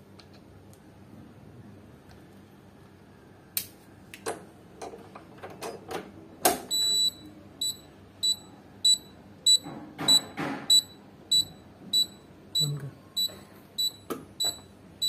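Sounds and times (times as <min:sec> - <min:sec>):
piezo buzzer beeping: 0:06.7 - 0:14.7.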